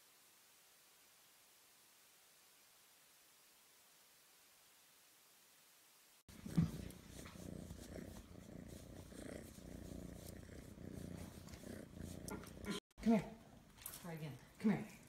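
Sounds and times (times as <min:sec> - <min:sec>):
cat purring: 0:06.3 - 0:13.8.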